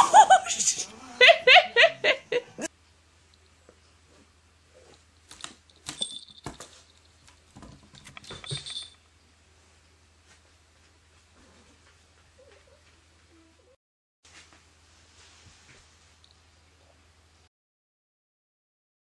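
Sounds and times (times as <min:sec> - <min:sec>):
small collar bell jingling: 0:05.7 - 0:07.2, 0:08.0 - 0:09.0.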